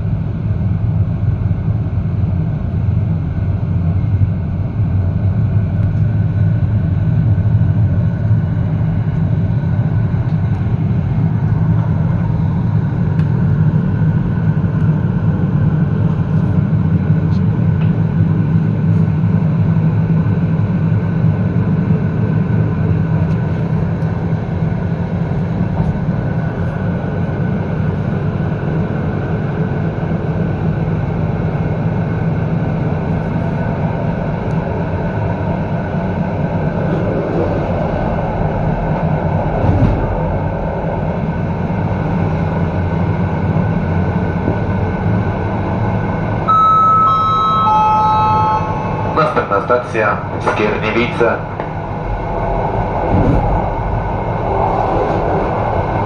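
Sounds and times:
train running at speed: 0.0s - 56.0s
three-note descending chime: 46.5s - 49.3s.

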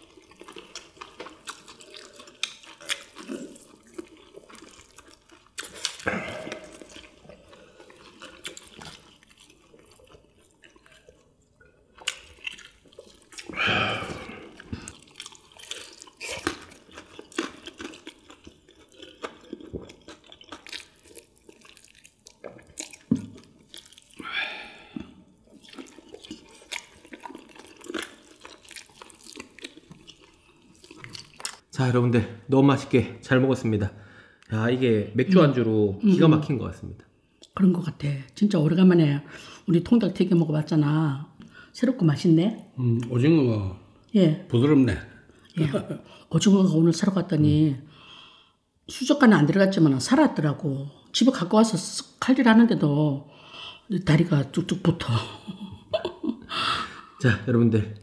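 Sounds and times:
wet chewing and lip smacks: 0.0s - 13.6s, 14.4s - 24.3s, 24.9s - 31.7s
breathy eating sounds: 0.0s - 31.6s, 47.9s - 48.6s, 53.3s - 53.9s.

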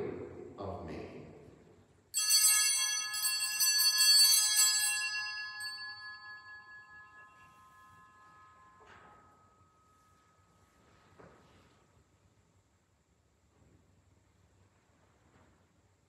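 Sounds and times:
altar bells ringing: 2.2s - 10.9s.

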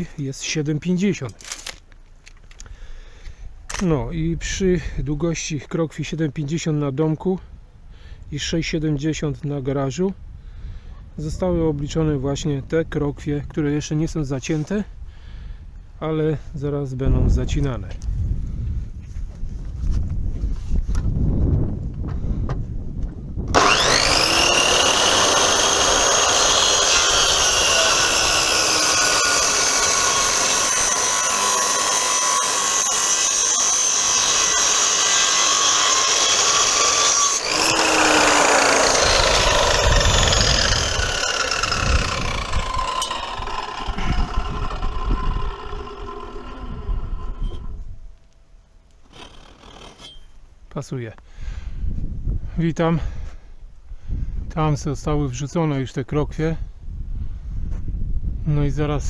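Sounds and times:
circular saw cutting wood: 23.5s - 47.9s, 49.0s - 50.4s.

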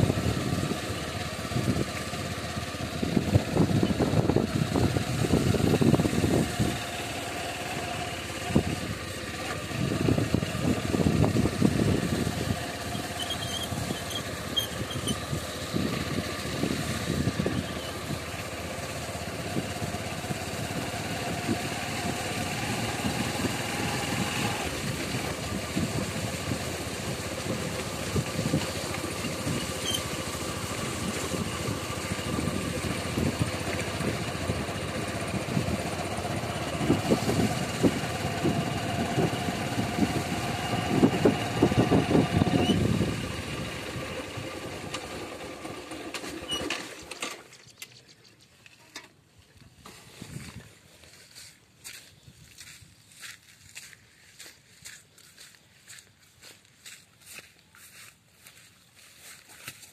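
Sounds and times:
low wind buffeting: 0.0s - 44.9s
motorcycle engine running: 0.0s - 59.9s.

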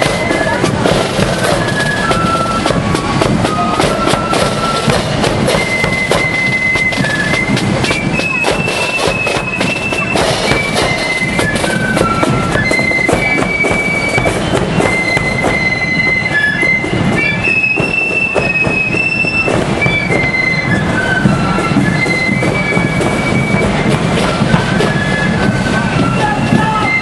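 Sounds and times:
cymbals: 0.0s - 27.0s
shrill flutes playing melody: 0.0s - 27.0s
snare drums: 0.0s - 27.0s
bass drum: 2.6s - 6.4s.

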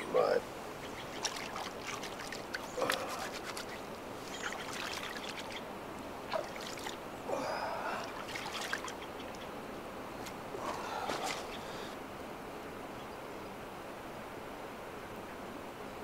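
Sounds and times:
water trickling: 0.0s - 11.9s.

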